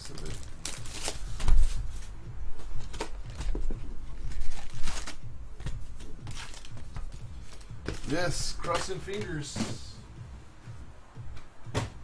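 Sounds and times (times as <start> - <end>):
thump on tabletop: 11.7 - 12.0.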